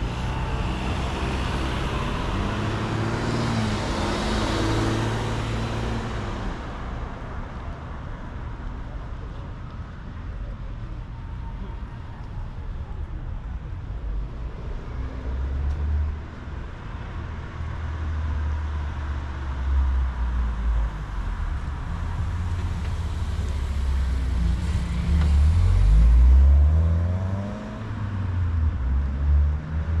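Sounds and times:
vehicle accelerating: 0.0s - 6.6s, 20.9s - 30.0s
traffic low rumble: 0.0s - 30.0s.

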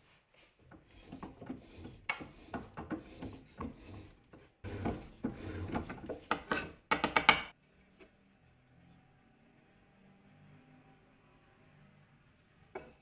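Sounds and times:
wooden boards sliding on table: 0.8s - 6.8s
short high squeak: 1.6s - 2.1s, 3.8s - 4.2s.

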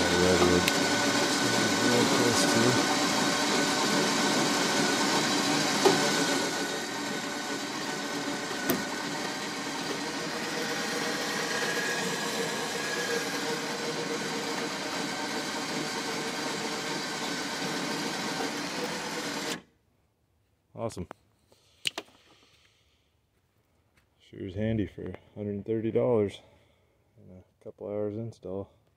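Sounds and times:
electric winch running: 0.0s - 19.6s.

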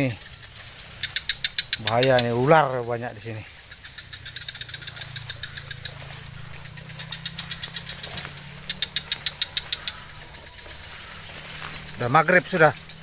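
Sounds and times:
high-pitched insect drone: 0.0s - 13.0s
insect chirping trill: 0.0s - 13.0s.

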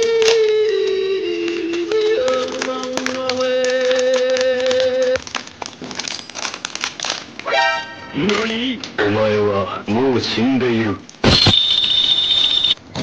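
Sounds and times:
plastic packet crinkling: 0.0s - 9.0s.

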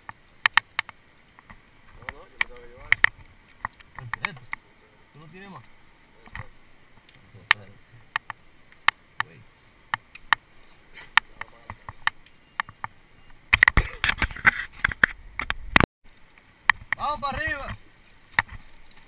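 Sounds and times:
gear clatter and rustle: 17.7s - 19.0s.

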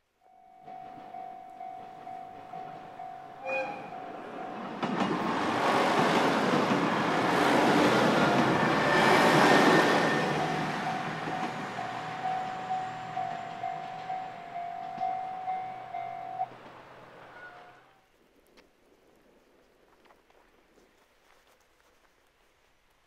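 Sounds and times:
level crossing bell ringing: 0.2s - 4.9s, 9.8s - 16.5s
passenger train rumbling: 0.4s - 17.9s
train horn blast: 3.3s - 4.6s.

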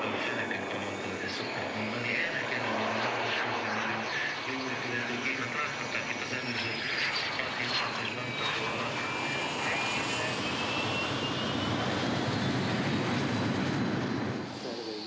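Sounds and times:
jet engine roar with whine: 0.0s - 15.0s.

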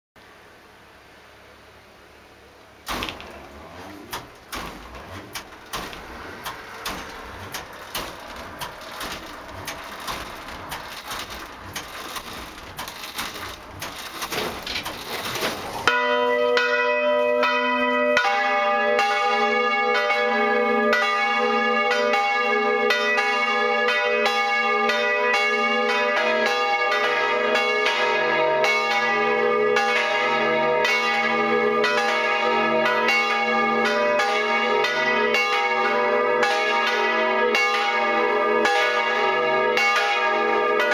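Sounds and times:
knocking and rattling: 2.9s - 16.0s
church bells ringing: 4.6s - 40.9s.

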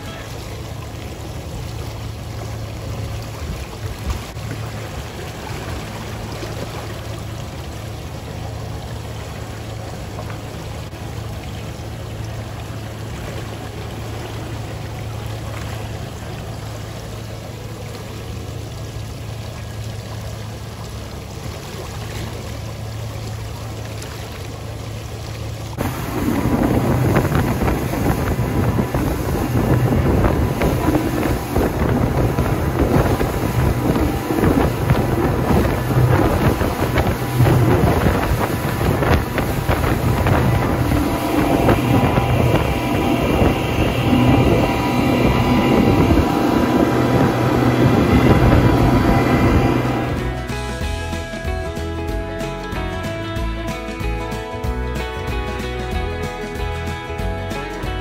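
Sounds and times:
boat engine droning: 0.0s - 58.0s
water wash: 0.0s - 58.0s
wind buffeting microphone: 25.8s - 50.6s.

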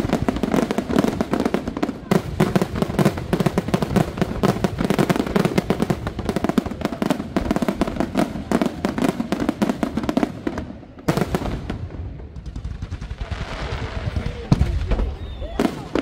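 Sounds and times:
fireworks bangs and crackling: 0.0s - 16.0s.

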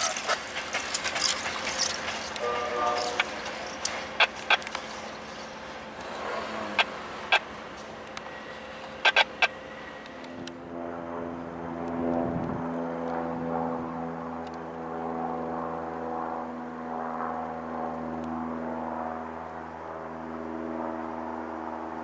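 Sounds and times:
diesel locomotive engine droning: 0.0s - 22.0s
sharp clicks: 0.8s - 5.3s, 9.0s - 10.6s.

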